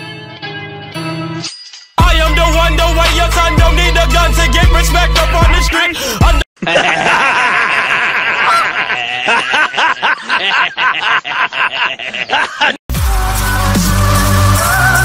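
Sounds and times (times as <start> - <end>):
person laughing heartily: 6.0 - 12.8.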